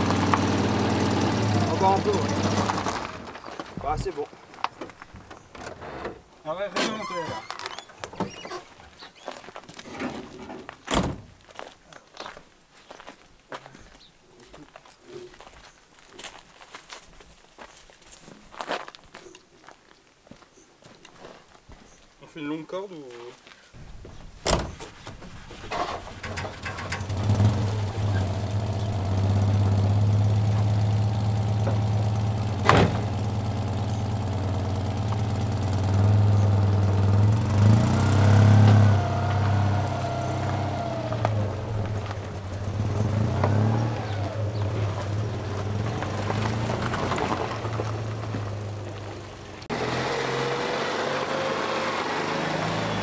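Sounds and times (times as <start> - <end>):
vehicle engine running: 0.0 - 3.4, 26.2 - 53.0.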